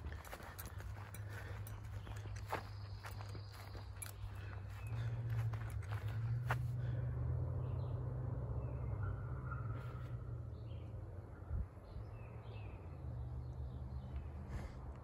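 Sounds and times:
steady low rumble: 0.0 - 8.4
birds chirping: 0.0 - 15.0.

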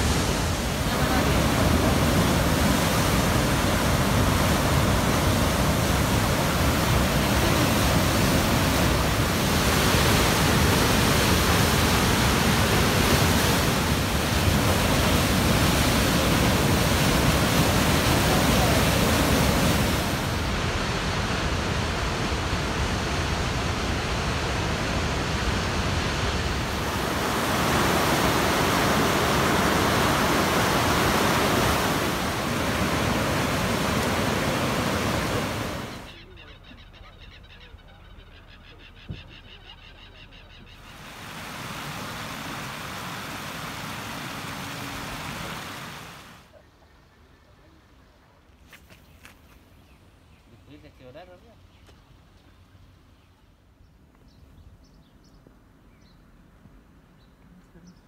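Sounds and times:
steady rushing noise: 0.0 - 36.1.

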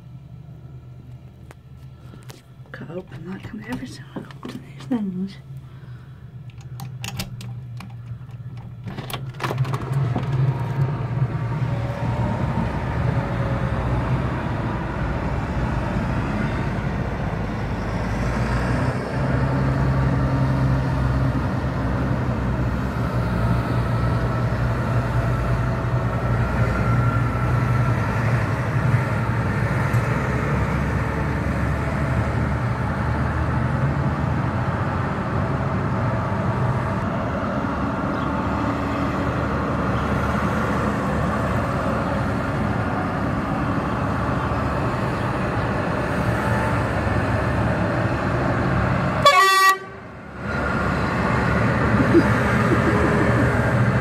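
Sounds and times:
tractor diesel engines passing: 0.0 - 54.0
clicks: 6.4 - 10.8.

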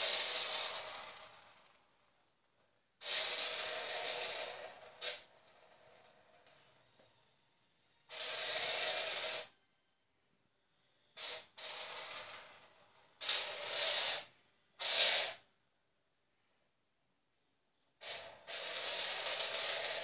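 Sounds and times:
metal screw scraping on wooden floor: 0.0 - 1.7, 3.0 - 7.1, 8.1 - 9.5, 11.2 - 15.4, 18.0 - 20.0.

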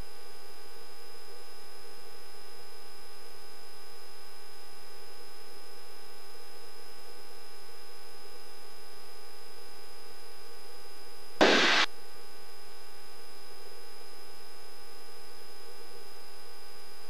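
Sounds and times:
intercom hiss and hum: 11.4 - 11.9
radio static burst: 11.4 - 11.9.

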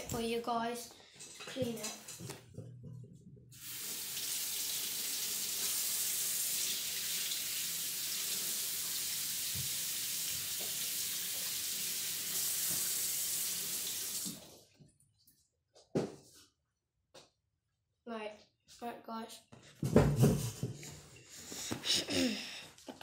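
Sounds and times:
tap water running into sink: 3.6 - 14.6.

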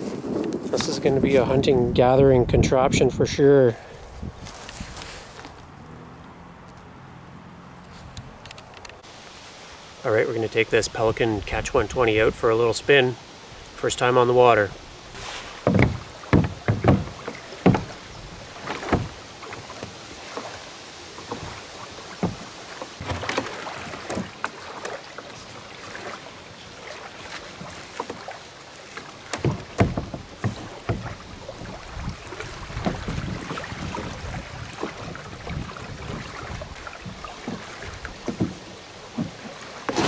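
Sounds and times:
wind hiss: 7.8 - 39.4
knocks on plastic kayak: 15.6 - 18.0, 29.3 - 31.2.

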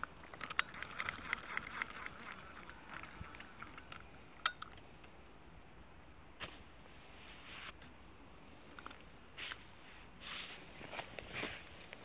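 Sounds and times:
microphone handling clicks and rustles: 10.3 - 12.0.

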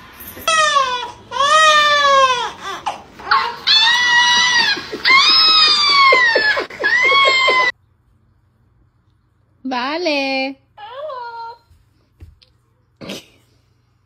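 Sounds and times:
baby crying: 0.4 - 7.7.

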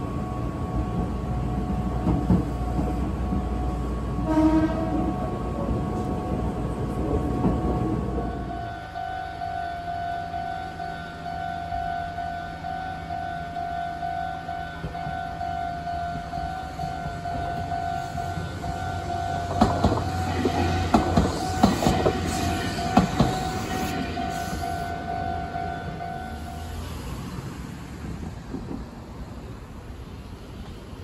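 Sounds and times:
level-crossing warning bell: 0.0 - 27.2
train wheels clattering: 16.1 - 26.5.

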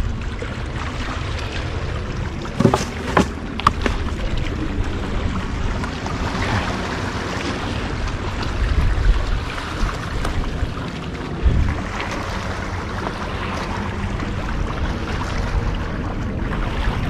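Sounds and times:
water wash: 0.0 - 17.0
wind rumbling on microphone: 0.0 - 17.0
sharp knocks: 2.6 - 3.4.

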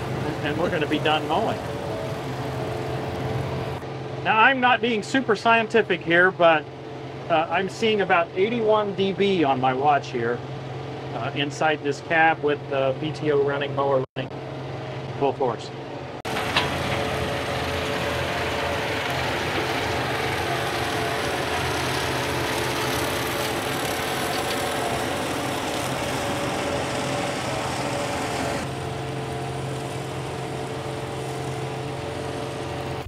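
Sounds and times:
tractor diesel engine under load: 0.0 - 4.6, 16.1 - 33.0
rotary mower cutting grass: 0.0 - 15.2, 16.2 - 33.0.

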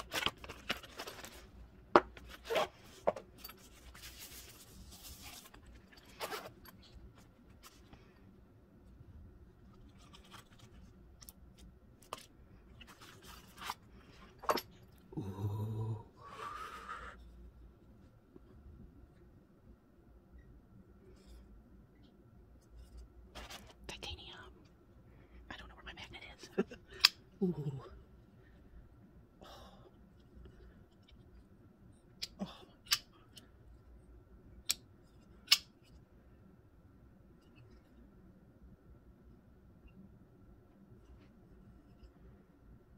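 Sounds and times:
handling rustle: 0.0 - 8.2, 9.6 - 14.7, 22.6 - 23.9
steady low hum: 0.0 - 42.9.

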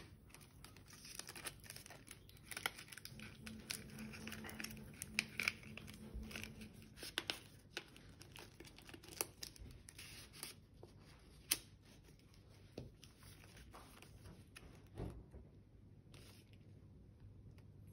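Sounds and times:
paper crackles and taps: 0.0 - 11.7, 12.5 - 15.1
paper crinkling: 0.0 - 14.7.

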